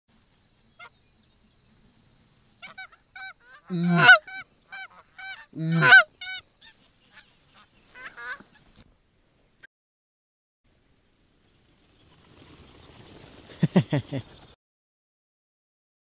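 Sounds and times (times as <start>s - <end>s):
geese honking: 2.6s - 8.7s.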